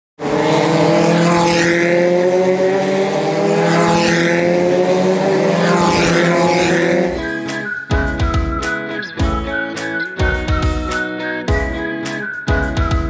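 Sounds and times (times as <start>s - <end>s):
high whine of passing cars: 0.2s - 7.6s
race cars droning: 0.2s - 7.7s.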